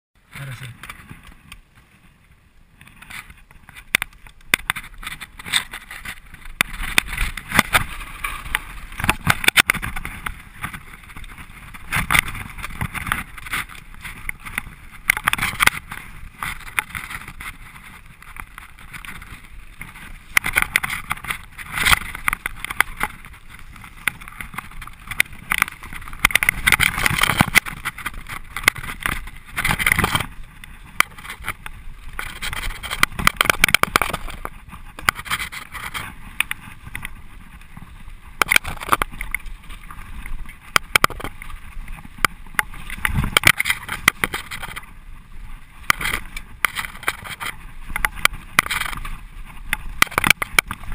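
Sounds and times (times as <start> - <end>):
bike tyres crunching on dirt: 0.2 - 50.9
bike knocking and rattling: 2.7 - 50.9.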